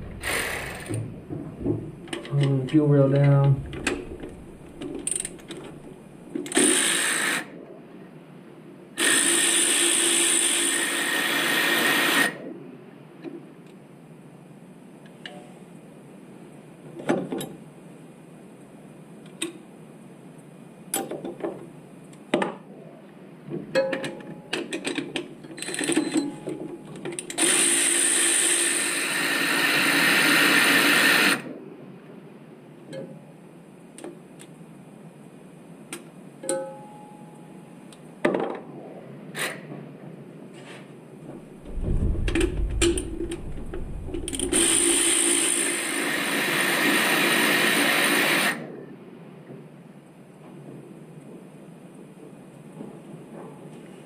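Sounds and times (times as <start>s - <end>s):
power tool running: 0.0s - 1.1s
short low rumble: 0.0s - 6.2s, 41.4s - 45.1s.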